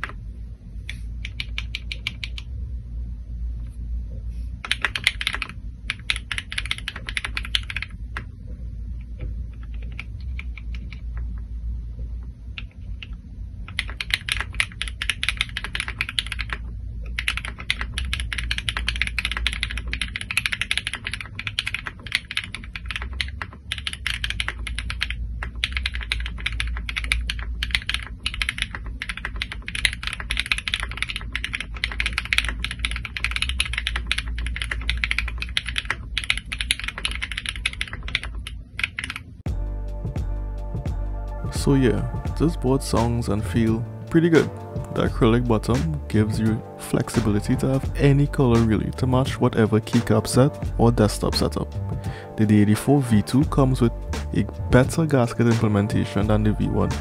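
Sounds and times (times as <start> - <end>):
mechanical keyboard typing: 1.2 - 2.5, 4.6 - 7.9, 9.5 - 11.0, 12.6 - 39.2.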